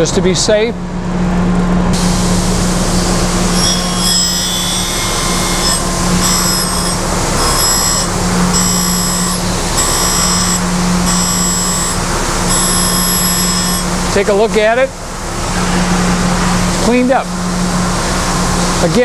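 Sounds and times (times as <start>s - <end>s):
grinder spindle humming: 2.0s - 14.6s
grinding wheel on steel: 2.6s - 14.2s.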